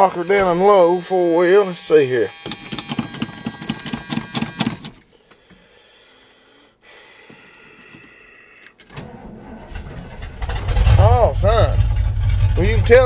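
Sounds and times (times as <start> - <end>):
starter cranking engine: 0.0 - 5.0, 8.9 - 13.0
truck engine firing: 8.9 - 13.0.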